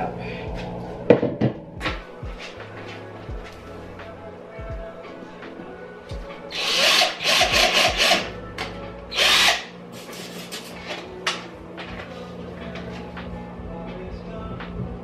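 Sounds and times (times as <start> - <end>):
cordless drill whirring: 6.5 - 8.2, 9.1 - 9.7.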